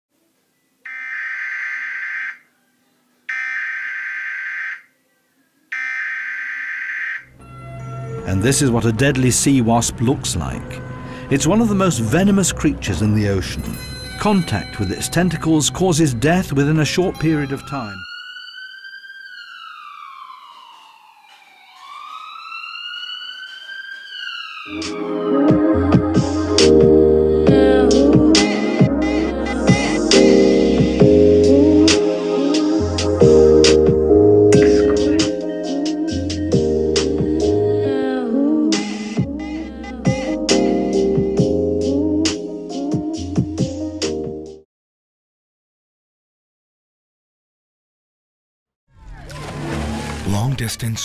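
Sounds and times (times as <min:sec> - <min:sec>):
alarm buzzer: 0:03.3 - 0:04.9
emergency siren wailing: 0:16.3 - 0:36.6, 0:49.0 - 0:51.0.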